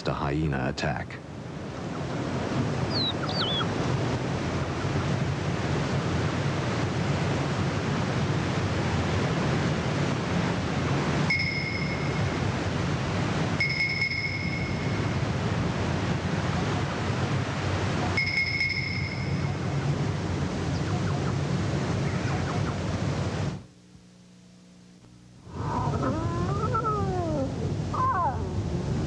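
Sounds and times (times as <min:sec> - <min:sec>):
steady outdoor rushing noise: 0:00.0 - 0:23.7
high whistling tones: 0:18.2 - 0:19.6.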